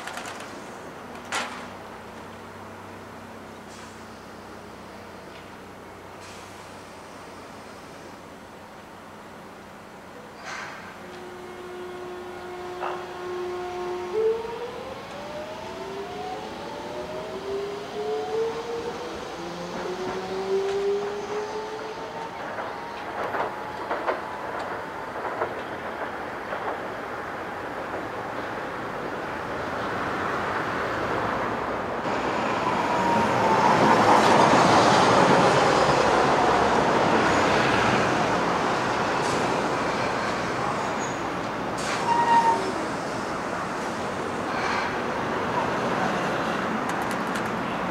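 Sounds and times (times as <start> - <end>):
road traffic: 0.0 - 47.9
streetcar running past: 0.0 - 47.9
faint thin squeal: 41.8 - 42.8.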